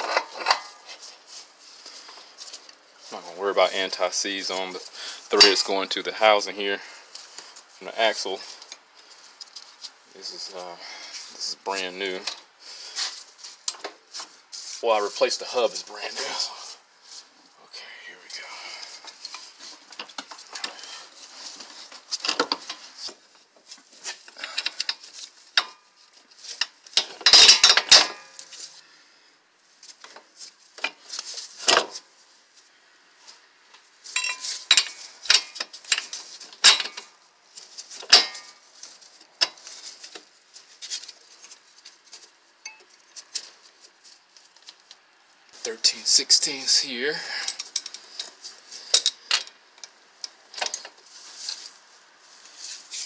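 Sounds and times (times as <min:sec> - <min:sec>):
metallic clinks and rattles: 0:34.1 - 0:37.1, 0:42.6 - 0:43.2.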